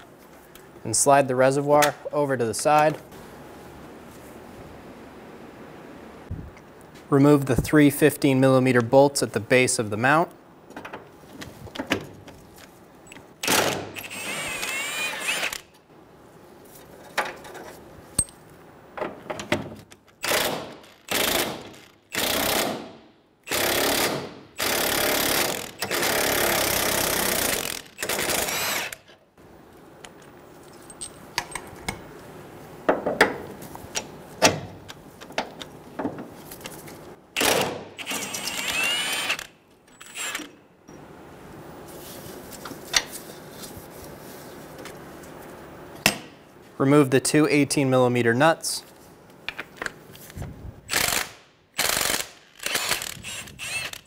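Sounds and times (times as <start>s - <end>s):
cordless power tool whining: 13.5s - 15.7s, 24.6s - 29.0s, 37.4s - 40.5s, 52.6s - 54.0s.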